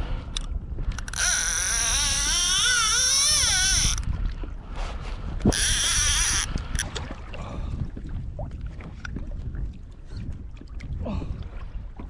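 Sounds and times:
fishing reel drag screaming: 0:01.0 - 0:04.0, 0:05.5 - 0:06.6.

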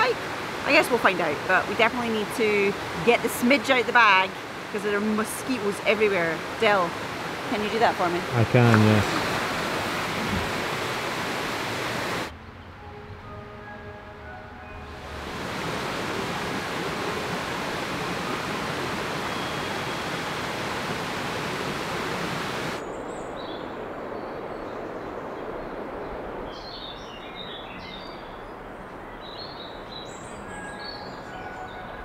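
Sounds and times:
forest ambience: 0:00.0 - 0:32.0
loud rushing noise: 0:08.3 - 0:13.9.

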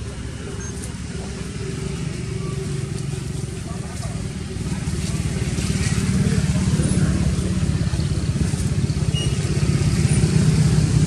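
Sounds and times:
engine running: 0:00.0 - 0:11.0.

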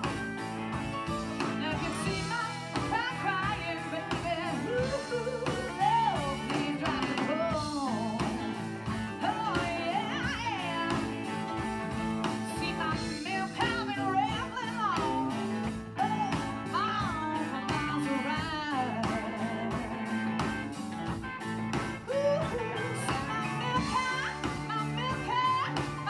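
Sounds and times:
live band playing: 0:00.0 - 0:26.0
woman singing blues: 0:00.0 - 0:26.0.

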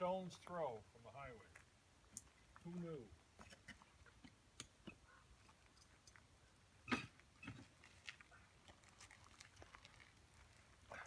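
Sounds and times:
footsteps on gravel: 0:07.1 - 0:11.0.

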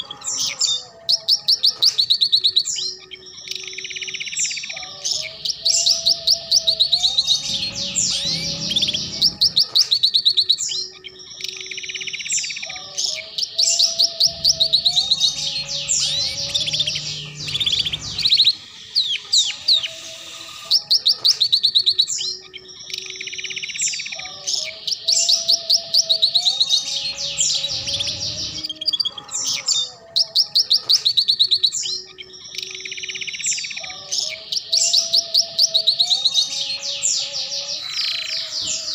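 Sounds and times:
canary singing trills and chirps: 0:00.0 - 0:38.9.

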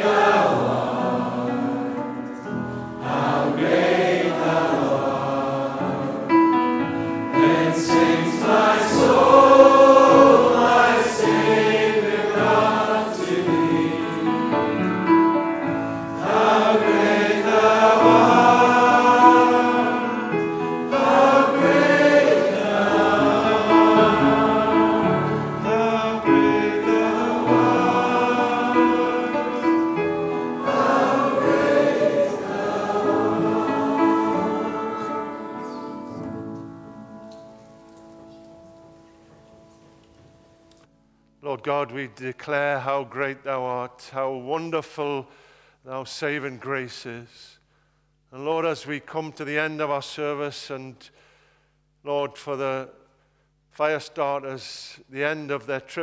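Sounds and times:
group singing a hymn: 0:00.0 - 0:36.8.

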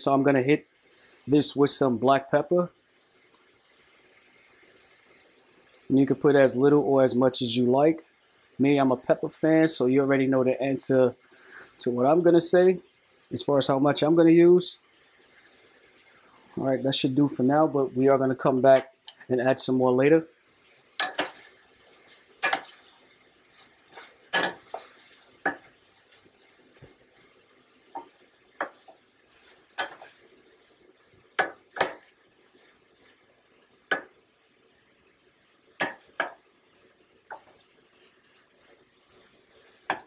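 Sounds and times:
wooden spoon stirring vegetables: 0:20.6 - 0:34.2, 0:35.7 - 0:36.5, 0:37.2 - 0:40.0
spoon clacking against pan: 0:21.0 - 0:27.2, 0:27.9 - 0:32.8, 0:33.9 - 0:34.2, 0:35.8 - 0:36.5, 0:37.3 - 0:37.6, 0:39.2 - 0:40.0.

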